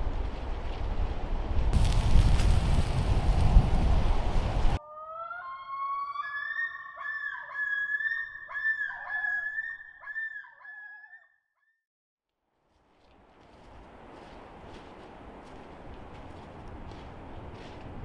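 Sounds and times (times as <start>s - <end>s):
wind noise on microphone: 0.0s - 4.8s.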